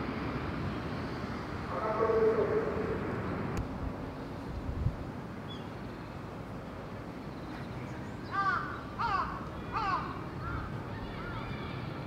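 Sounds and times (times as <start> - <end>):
steady background noise: 0.0 - 12.0
crow cawing: 8.3 - 11.4.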